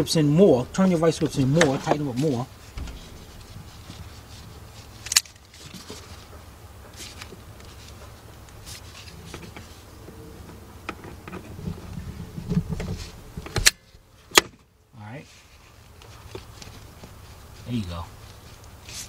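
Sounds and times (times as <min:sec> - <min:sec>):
steady low rumble: 0:00.0 - 0:13.4
gloved hands rustling: 0:00.8 - 0:10.2, 0:15.3 - 0:19.0.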